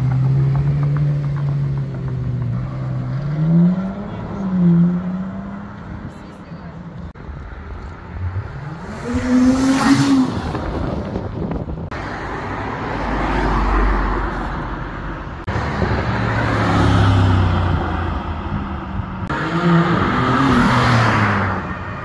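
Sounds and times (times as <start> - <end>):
cars accelerating past: 7.7 - 14.7.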